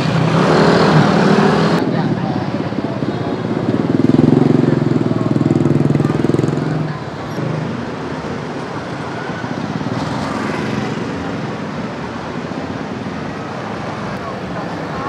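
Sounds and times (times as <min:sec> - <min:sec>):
motorcycle engine running close: 0:00.0 - 0:15.0
other motorbike engines: 0:00.0 - 0:15.0
street traffic noise: 0:00.0 - 0:15.0.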